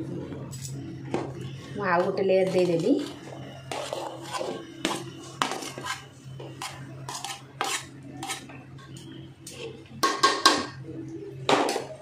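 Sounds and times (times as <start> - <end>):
metal spoon scraping cooking pot: 2.0 - 8.5.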